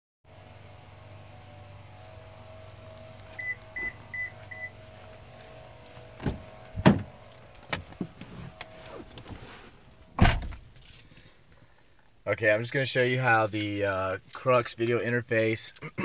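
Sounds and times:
truck door knocks and clicks: 6.2 - 7.1.

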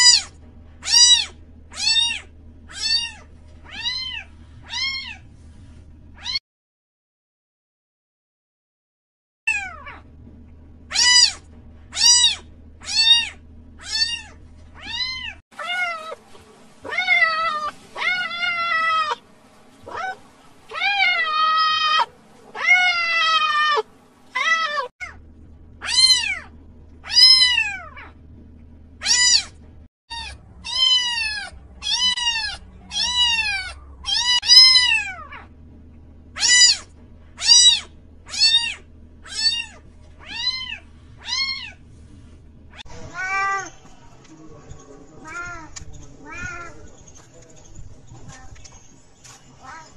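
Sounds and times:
cat meowing: 0.0 - 5.2, 6.2 - 6.4, 9.5 - 10.0, 10.9 - 16.2, 16.8 - 19.2, 19.8 - 25.2, 25.8 - 28.2, 29.0 - 35.5, 36.4 - 41.8, 42.7 - 43.8, 45.2 - 46.8.

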